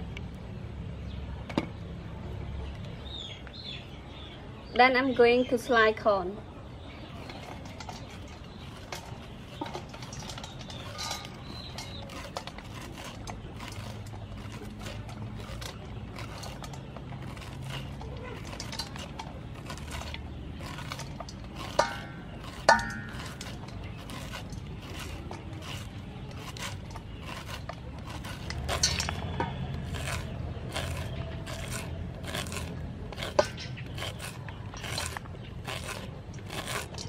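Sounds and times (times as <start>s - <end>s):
kernels clicking into metal bowl: 7.2s - 37.0s
knife slicing corn kernels: 7.2s - 37.0s.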